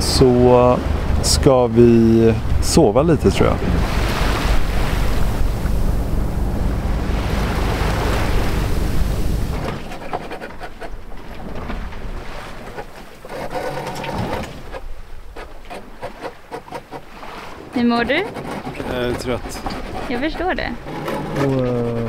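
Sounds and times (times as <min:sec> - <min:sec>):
wind buffeting microphone: 0:00.0 - 0:10.3
water rushing past boat: 0:00.0 - 0:22.0.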